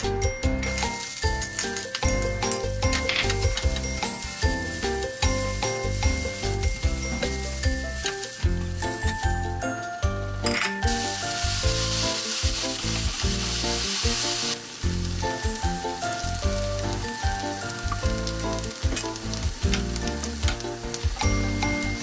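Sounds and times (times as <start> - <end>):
background music: 0.0 - 22.0
vegetables sizzling in a pan: 0.6 - 22.0
liquid hissing in hot pan: 3.3 - 9.2, 10.9 - 20.0.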